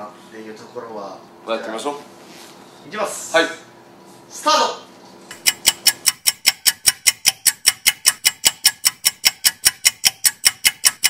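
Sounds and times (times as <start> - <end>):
clock ticking: 5.3 - 11.0.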